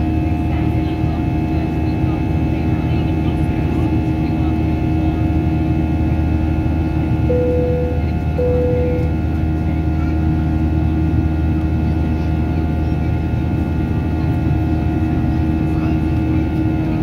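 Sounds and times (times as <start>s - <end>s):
short cabin tones: 7.3s - 9.3s.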